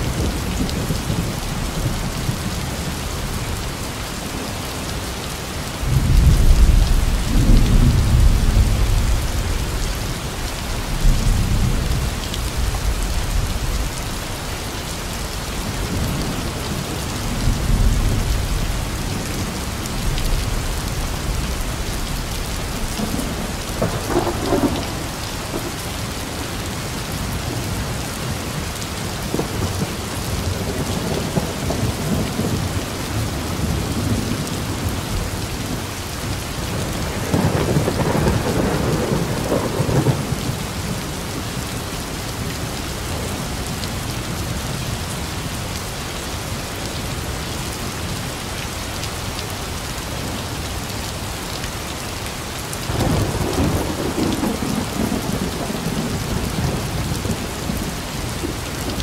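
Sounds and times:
heavy rain: 0.0s - 59.0s
thunder rumbling: 15.6s - 26.4s, 36.5s - 41.2s, 52.9s - 59.0s.

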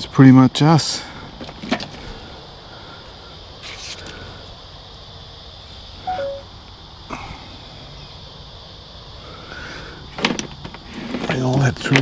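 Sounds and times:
insects droning: 0.0s - 12.0s
two-note falling whistle: 6.1s - 6.4s.

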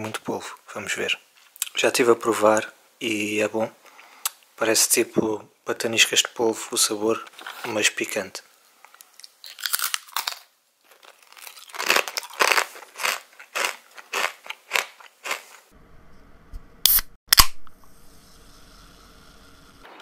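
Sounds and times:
crunchy chips being chewed: 8.9s - 15.7s.

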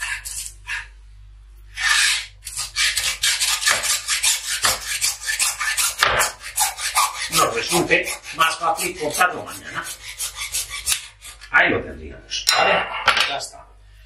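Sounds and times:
hacksaw sawing through bone: 0.0s - 0.8s, 1.8s - 11.5s.

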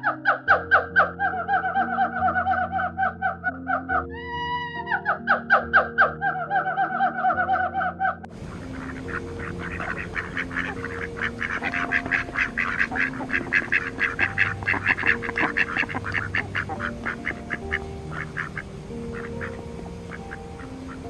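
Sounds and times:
ducks quacking: 4.9s - 21.0s.

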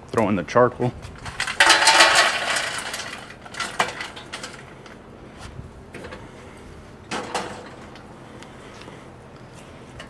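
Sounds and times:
charcoal clattering in metal basket: 1.2s - 5.0s, 7.1s - 7.9s.

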